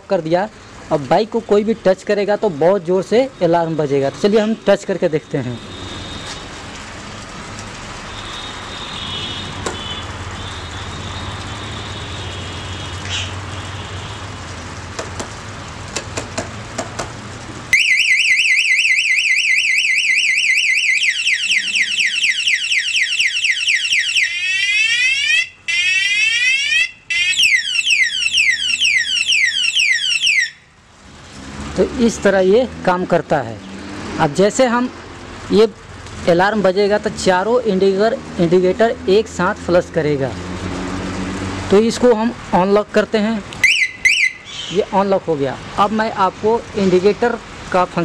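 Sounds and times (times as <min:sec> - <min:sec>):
alarm siren warbling: 0:17.7 - 0:30.7, 0:43.6 - 0:44.5.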